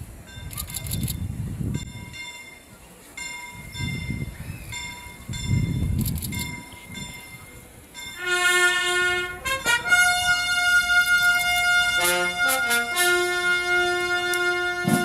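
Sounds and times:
trumpet ensemble playing a fanfare: 8.2s - 15.0s
sharp drum strikes: 14.8s - 15.0s.

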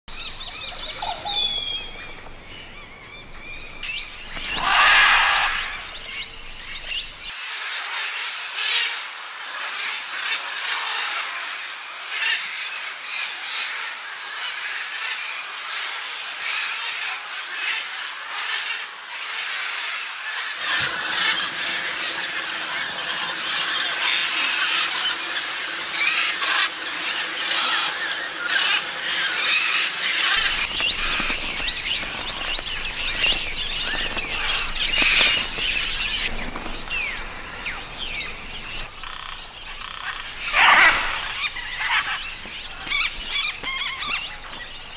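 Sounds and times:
harsh squawk: 4.4s - 6.0s, 39.8s - 42.2s
parrots chattering: 4.4s - 6.3s, 20.6s - 36.6s, 38.2s - 44.4s.

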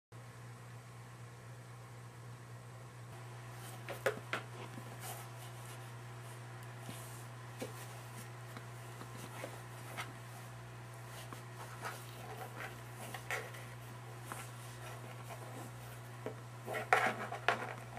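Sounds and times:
paws scratching cardboard box: 7.6s - 17.9s.

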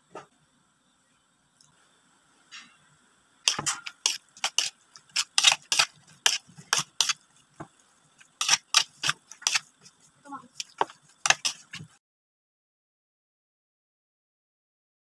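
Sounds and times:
metal spoon scraping a plate: 3.5s - 7.2s, 8.4s - 9.9s, 10.6s - 11.9s.

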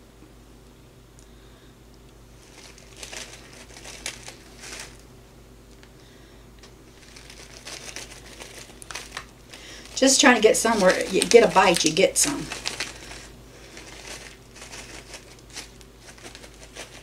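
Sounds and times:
wrapper crinkling: 2.4s - 5.0s, 6.9s - 17.0s.

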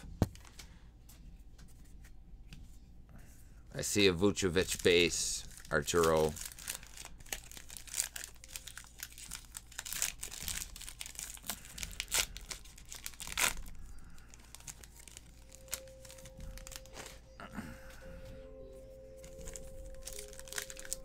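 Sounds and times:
plastic wrapper crinkling and tearing: 3.8s - 17.3s, 19.1s - 21.0s.

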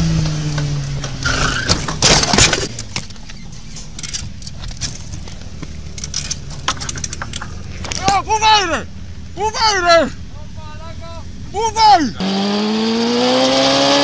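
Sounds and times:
motorcycle crashing with scraping clatter: 0.5s - 5.2s
small clicks and rattles: 2.3s - 8.2s.

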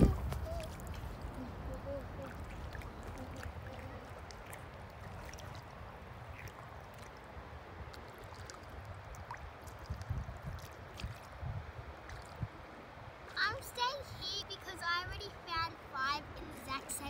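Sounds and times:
wind rumbling on microphone: 0.0s - 13.6s
shallow water washing: 0.0s - 17.0s.

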